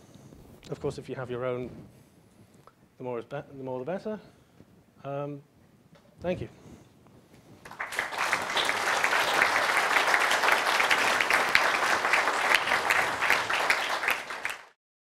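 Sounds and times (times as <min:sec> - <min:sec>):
audience applauding: 0:07.6 - 0:14.8.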